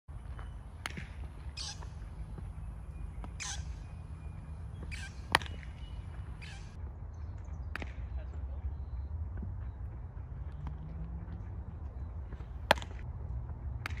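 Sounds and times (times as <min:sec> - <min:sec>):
baseball smacking into glove: 0:00.8 - 0:01.2, 0:05.3 - 0:05.8, 0:12.3 - 0:13.0.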